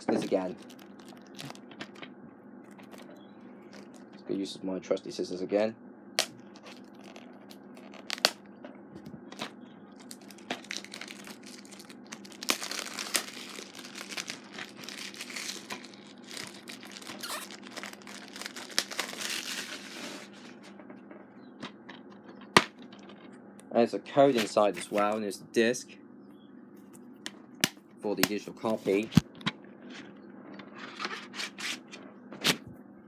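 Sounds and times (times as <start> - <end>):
plastic wrap crinkling and tearing: 0.2 - 2.0, 6.5 - 8.4, 9.4 - 20.5.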